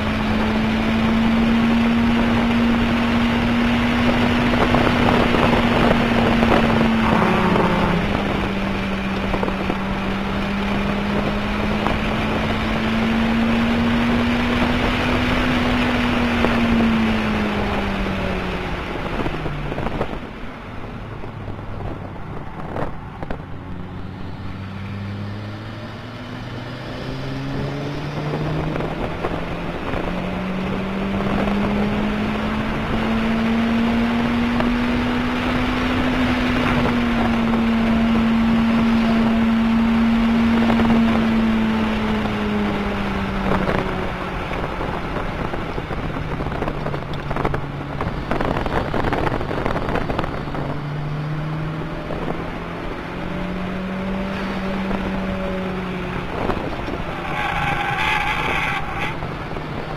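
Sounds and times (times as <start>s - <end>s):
car engine accelerating: 0.0s - 59.9s
wind and road noise: 0.0s - 59.9s.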